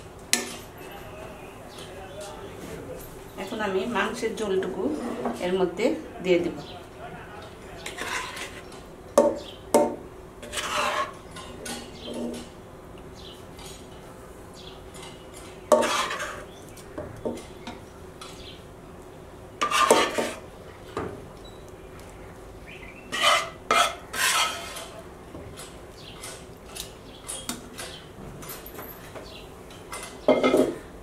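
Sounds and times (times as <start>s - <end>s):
spoon scraping cooking pots: 7.8s - 9.4s, 10.4s - 12.6s, 14.9s - 18.4s, 19.6s - 20.5s, 23.0s - 28.0s, 29.8s - 30.9s.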